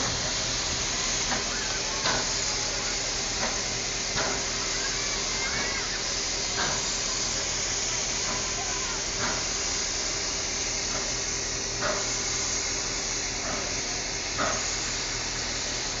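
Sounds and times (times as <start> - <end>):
faint voices: 0.0 - 16.0
steam hissing: 0.0 - 16.0.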